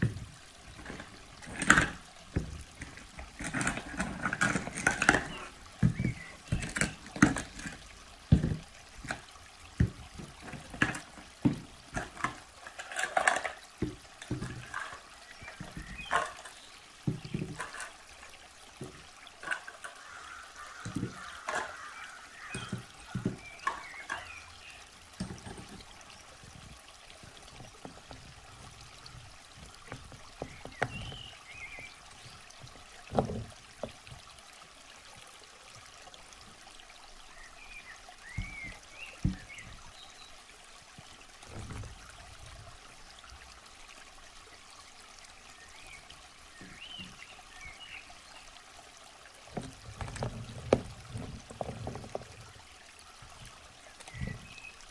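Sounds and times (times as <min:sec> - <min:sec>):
rocks and toys knocking: 0:00.0 - 0:18.0, 0:18.8 - 0:20.0, 0:20.6 - 0:24.4, 0:25.2 - 0:25.9, 0:26.6 - 0:31.9, 0:32.6 - 0:34.0, 0:38.3 - 0:39.8, 0:49.5 - 0:52.5
faint trickling water: 0:00.0 - 0:54.9.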